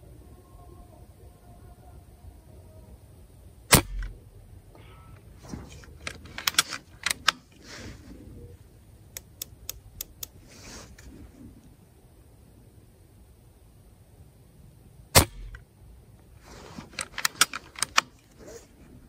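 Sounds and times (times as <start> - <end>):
air rifle shot: 3.7 - 4.2, 15.2 - 15.6.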